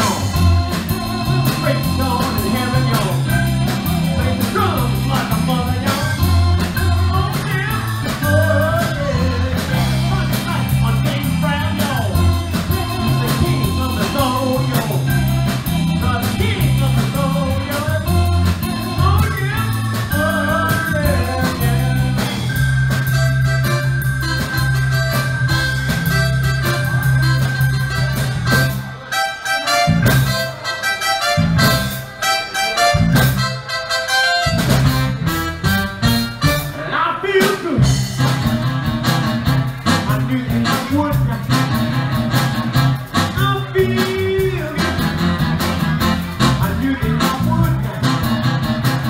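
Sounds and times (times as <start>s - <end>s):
person singing: 0.0s - 22.6s, 39.8s - 42.4s, 43.2s - 45.5s, 46.4s - 48.7s
bass line: 0.0s - 49.0s
electric guitar: 0.0s - 49.0s
live blues-rock band: 0.0s - 49.0s.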